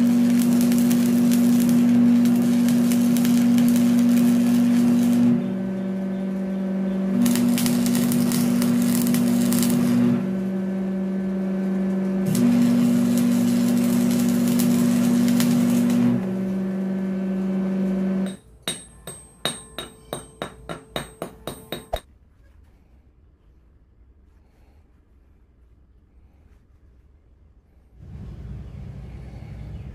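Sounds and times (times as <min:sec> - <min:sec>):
welding arc crackling: 0:00.0 - 0:18.8
welder humming: 0:00.0 - 0:22.0.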